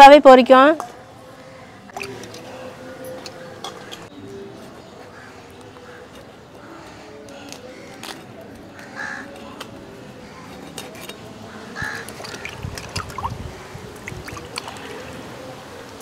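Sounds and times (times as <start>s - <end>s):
fish splashed in bowl of water: 1.9s - 2.6s, 11.8s - 15.2s
fish scraping against blade: 10.5s - 13.2s.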